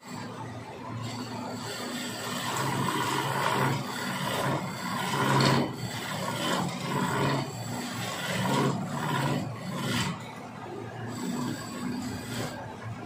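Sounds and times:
chisel scraping wood on a lathe: 1.0s - 10.3s, 11.1s - 12.7s
lathe humming: 1.0s - 13.0s.

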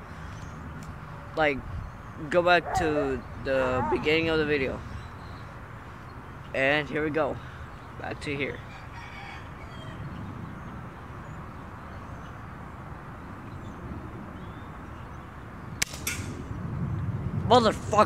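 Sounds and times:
outdoor background noise: 0.0s - 18.0s
air rifle firing pop: 15.8s - 16.4s.

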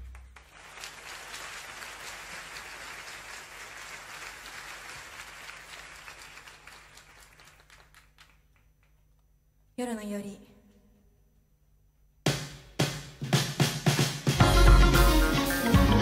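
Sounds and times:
audience clapping: 0.0s - 9.2s.

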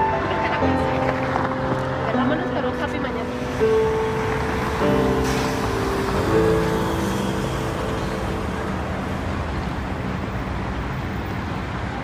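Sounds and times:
city street traffic: 0.0s - 12.0s.

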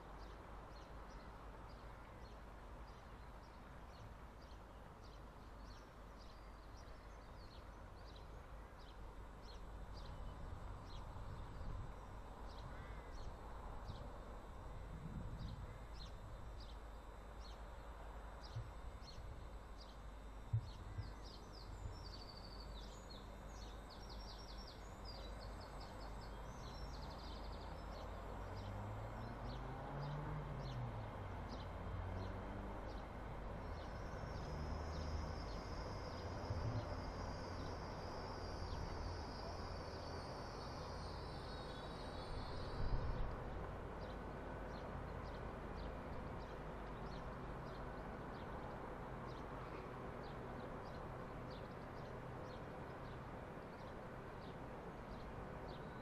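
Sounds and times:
small birds chirping: 15.4s - 56.0s.

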